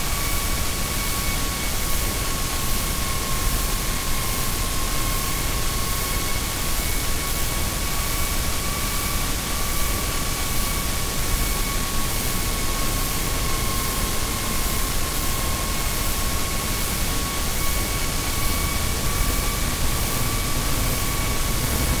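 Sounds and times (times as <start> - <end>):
static hiss: 12.1 - 22.0.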